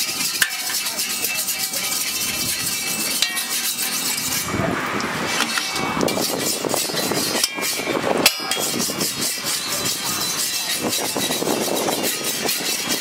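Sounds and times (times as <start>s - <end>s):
spatula clack: 0.0s - 4.3s
metal spatula scraping: 0.0s - 13.0s.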